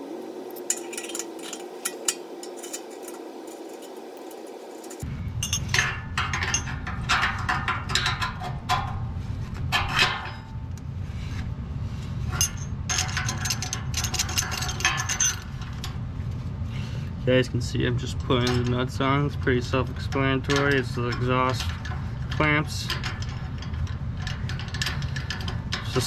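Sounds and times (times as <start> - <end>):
steady low rumble: 0.0 - 26.0
metal clinking and scraping: 0.4 - 10.7, 12.2 - 16.0, 18.0 - 26.0.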